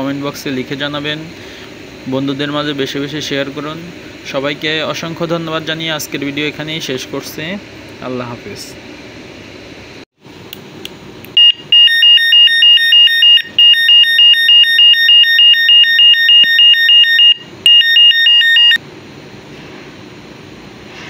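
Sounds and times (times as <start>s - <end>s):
electronic horn pulsing beeps: 11.4s - 18.8s.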